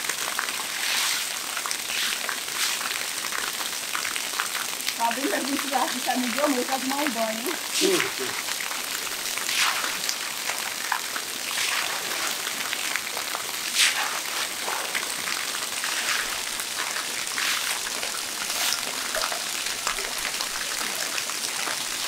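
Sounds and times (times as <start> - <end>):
water running and splashing: 0.0 - 22.0
small irregular splashes: 0.3 - 22.0.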